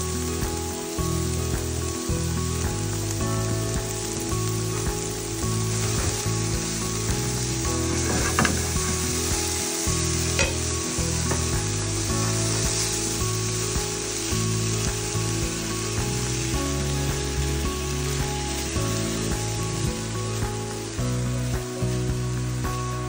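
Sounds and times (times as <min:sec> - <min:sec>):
background music: 0:00.0 - 0:23.0
food sizzling in frying pans: 0:00.0 - 0:23.0
spatula knocking on pan: 0:10.4 - 0:10.7.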